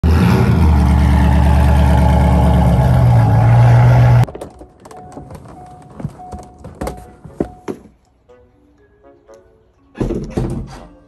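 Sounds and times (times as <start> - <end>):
car engine idling: 0.0 - 4.3.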